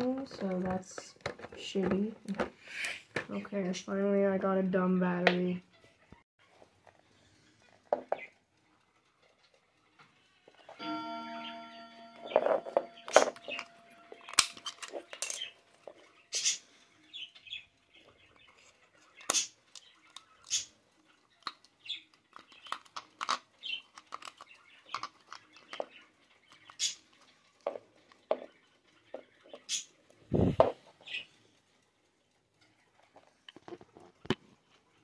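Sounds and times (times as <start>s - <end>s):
plastic clicks and scrapes: 0.0s - 3.3s, 18.4s - 28.5s, 33.0s - 34.8s.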